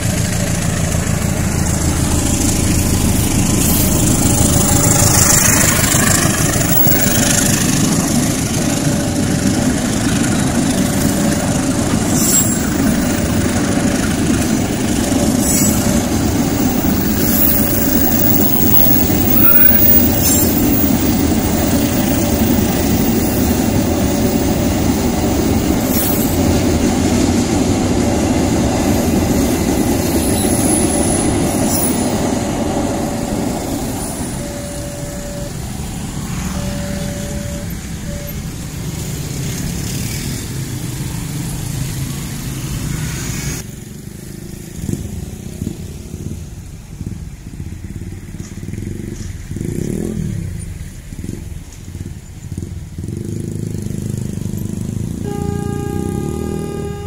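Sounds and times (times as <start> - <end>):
freight train wheels rumbling: 0.0 - 43.0
motorcycles idling and pulling away: 0.0 - 57.0
road traffic passing: 0.0 - 57.0
short beeps: 34.0 - 38.5.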